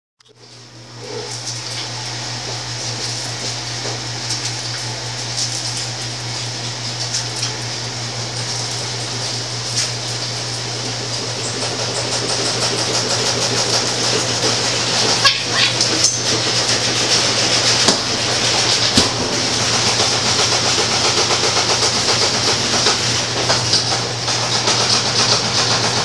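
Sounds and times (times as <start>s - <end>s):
fan mechanical hum: 0.2s - 26.0s.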